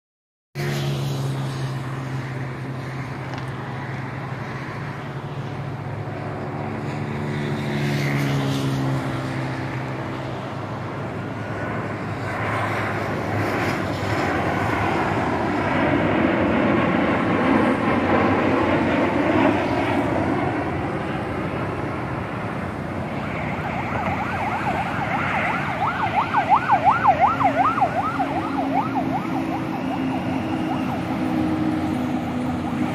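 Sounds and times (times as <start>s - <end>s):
jet airliner passing overhead: 0.6s - 32.9s
low engine hum: 0.6s - 32.9s
warbling siren-like tone: 11.6s - 32.9s.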